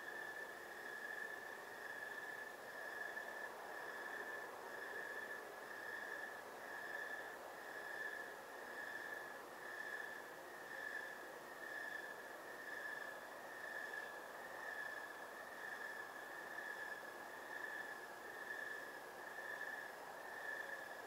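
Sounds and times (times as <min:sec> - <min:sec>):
cricket chirping: 0:00.0 - 0:21.0
outdoor night ambience hiss: 0:00.0 - 0:21.0.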